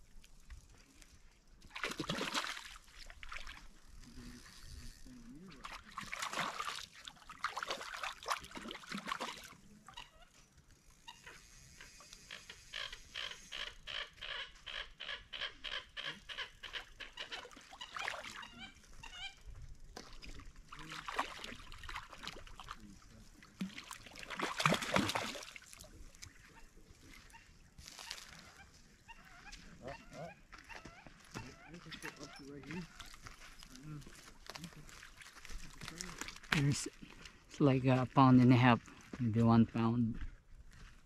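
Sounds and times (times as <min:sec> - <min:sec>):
fish splashing at surface: 0:01.7 - 0:03.7, 0:05.6 - 0:09.6, 0:20.0 - 0:22.8, 0:23.4 - 0:26.6.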